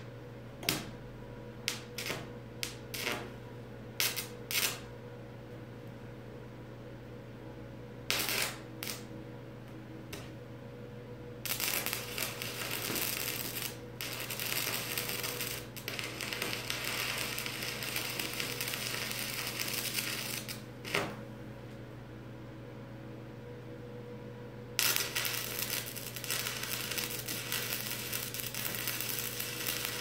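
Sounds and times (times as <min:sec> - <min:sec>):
welding arc crackling: 0:01.7 - 0:03.3, 0:04.0 - 0:04.8, 0:08.1 - 0:09.1, 0:11.4 - 0:21.1, 0:24.8 - 0:30.0.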